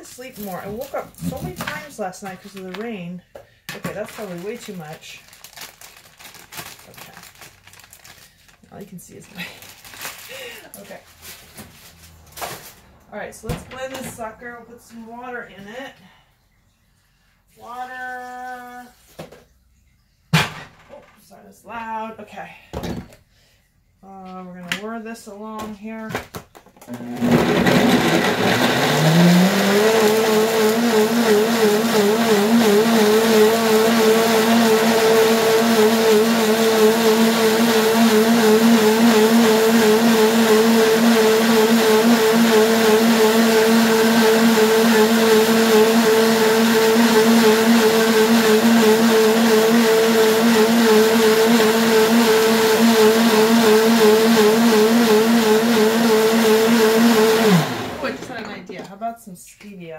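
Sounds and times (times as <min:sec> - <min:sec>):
blender motor whining: 0:26.8 - 0:58.4.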